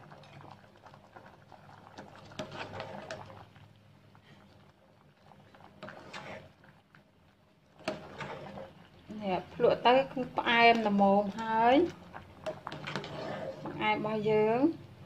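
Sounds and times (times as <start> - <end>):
liquid bubbling: 0.0 - 15.0
metal ladle scraping pot: 2.0 - 3.4, 5.7 - 6.6, 7.8 - 8.9, 9.6 - 14.4.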